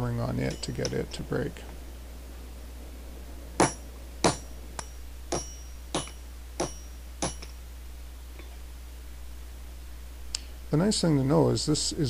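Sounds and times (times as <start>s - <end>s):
hammer striking steel bar: 3.6s - 7.6s.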